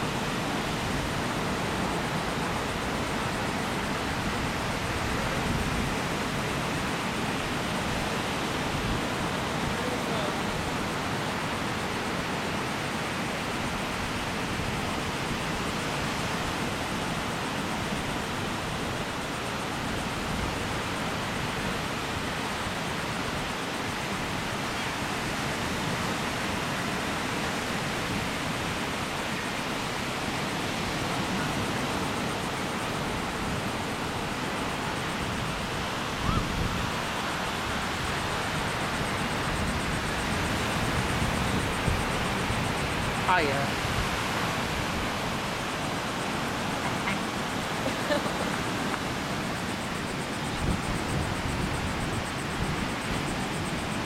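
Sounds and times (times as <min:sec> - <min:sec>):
ocean surf breaking: 0:00.0 - 0:54.0
wind on microphone: 0:24.0 - 0:54.0.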